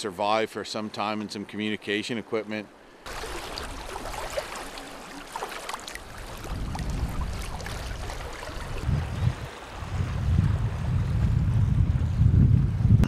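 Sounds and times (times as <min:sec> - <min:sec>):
river water flowing: 0:00.0 - 0:11.0
wind rumble on microphone: 0:06.1 - 0:13.0.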